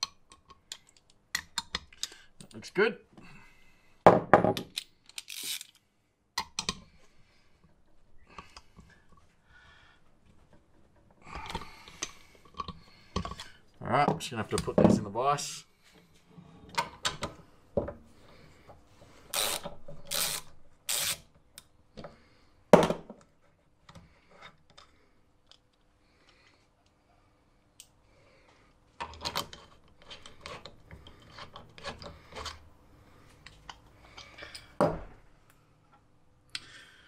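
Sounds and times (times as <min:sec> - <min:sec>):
tools knocking and clicking: 0:00.0 - 0:02.6, 0:06.4 - 0:06.9.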